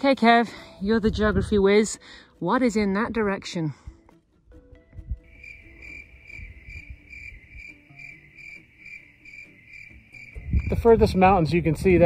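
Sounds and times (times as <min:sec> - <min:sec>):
insect chirping: 0:05.3 - 0:10.9.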